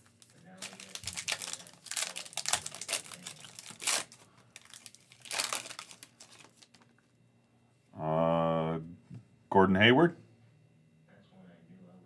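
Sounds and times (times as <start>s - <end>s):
foil wrapper ripping: 0.0s - 6.9s
foil wrapper crinkling: 0.0s - 7.0s.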